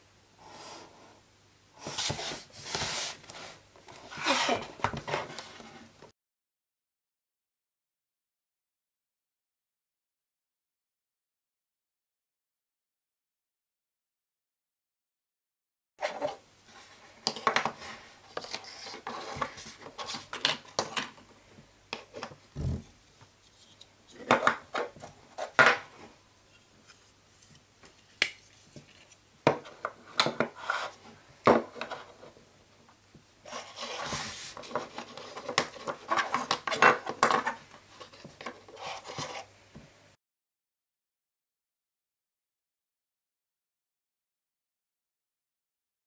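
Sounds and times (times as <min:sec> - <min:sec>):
plastic pieces rubbing and rattling: 0:33.5 - 0:39.4.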